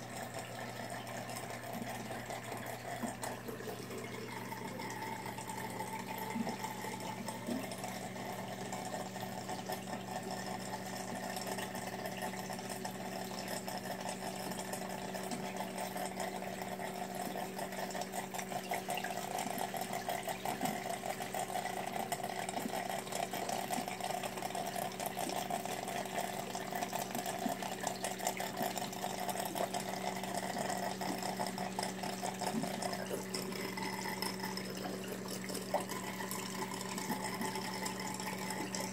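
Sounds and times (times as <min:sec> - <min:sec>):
pump hum: 0:00.0 - 0:38.9
trickling and splashing water: 0:00.0 - 0:38.9.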